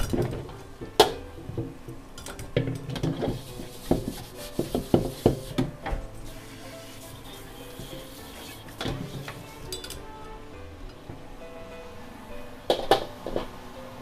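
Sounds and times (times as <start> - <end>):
metal ladle scraping a wok: 6.2 - 10.0.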